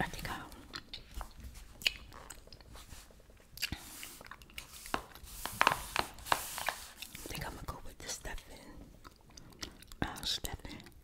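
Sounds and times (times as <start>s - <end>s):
gum chewing smacks and clicks: 1.8s - 2.7s, 3.6s - 4.7s, 9.0s - 11.0s
hand brushing over paper: 3.8s - 7.6s.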